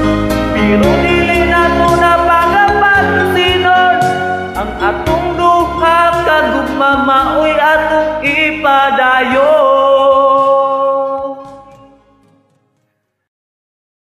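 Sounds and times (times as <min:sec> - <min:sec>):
karaoke backing track: 0:00.0 - 0:13.0
man singing: 0:00.4 - 0:12.3.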